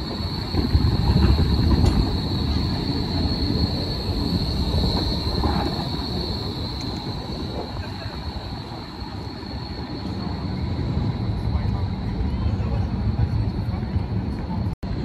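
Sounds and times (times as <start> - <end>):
wheel squeal on track: 0.0 - 11.1
tram rumbling past: 0.0 - 15.0.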